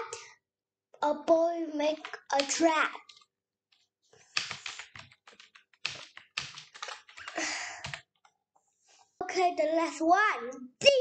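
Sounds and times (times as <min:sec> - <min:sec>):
typing on computer keyboard: 0:04.3 - 0:08.3.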